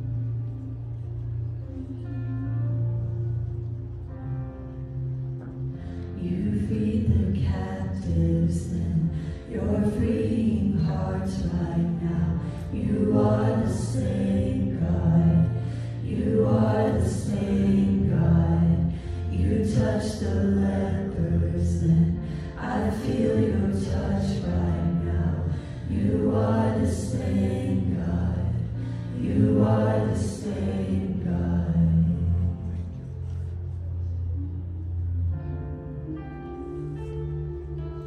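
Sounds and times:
held low accompaniment notes: 0.0 - 38.0
group singing worship song: 6.2 - 32.8.

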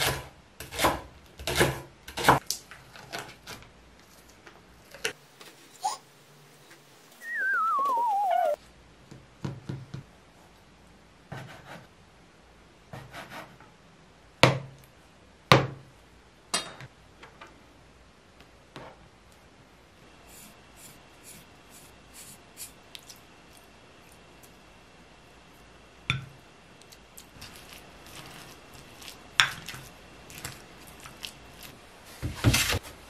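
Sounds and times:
descending wavering whistle: 7.2 - 8.6.

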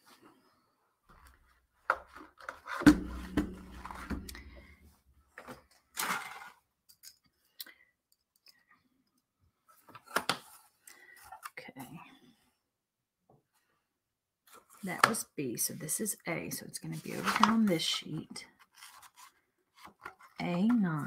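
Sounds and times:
hard objects knocking and clattering: 2.8 - 4.7.

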